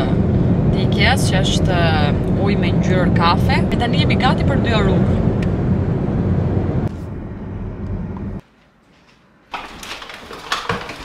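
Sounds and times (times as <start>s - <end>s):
car cabin road noise: 0.0s - 8.4s.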